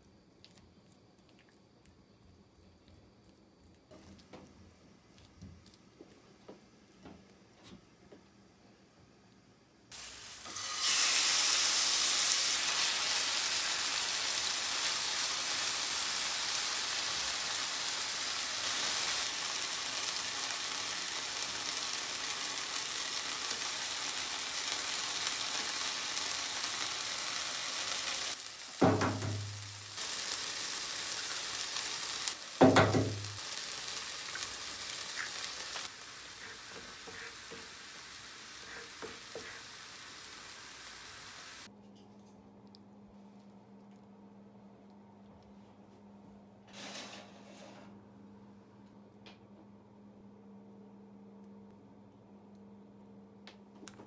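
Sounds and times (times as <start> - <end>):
food sizzling in a pan: 9.9 - 41.7.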